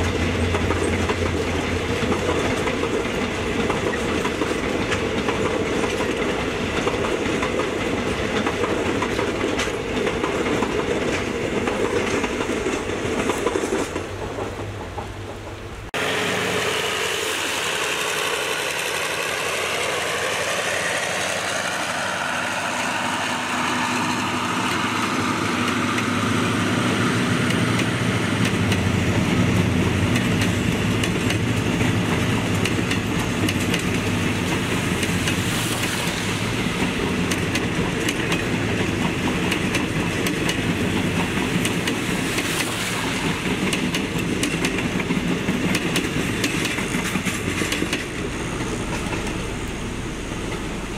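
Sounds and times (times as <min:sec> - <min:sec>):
wheels clicking over rail joints: 0:00.0 - 0:15.9, 0:27.4 - 0:36.0, 0:36.7 - 0:50.9
locomotive passing with falling whine: 0:16.0 - 0:39.5, 0:46.2 - 0:50.9.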